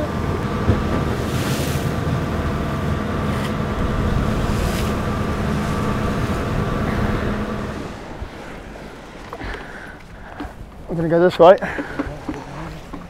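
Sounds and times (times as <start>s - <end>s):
boat engine running: 0.0s - 13.0s
wind: 0.0s - 13.0s
sea noise: 1.0s - 13.0s.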